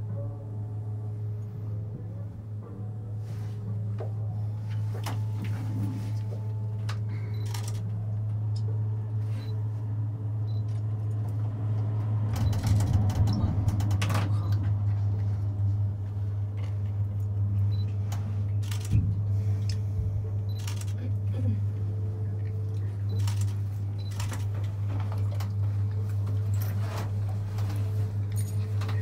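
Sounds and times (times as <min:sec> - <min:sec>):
cable car cabin hum: 0:00.0 - 0:29.0
clicks and creaks: 0:12.3 - 0:15.0.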